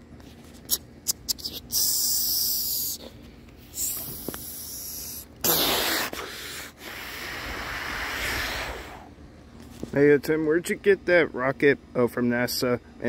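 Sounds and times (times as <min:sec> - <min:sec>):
hissing bursts: 0:03.7 - 0:09.1.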